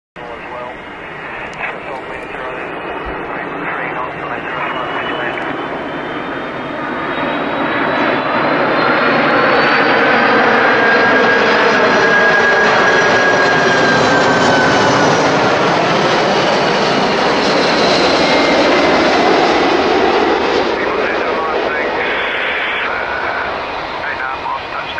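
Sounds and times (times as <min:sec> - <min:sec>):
jet airliner engine noise: 0:00.2 - 0:24.9.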